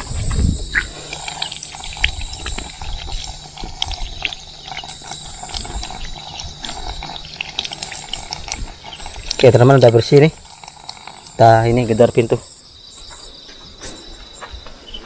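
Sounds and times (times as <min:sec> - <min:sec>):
water splashing over leaves: 0:00.7 - 0:11.8
water running from a tap: 0:00.7 - 0:12.2.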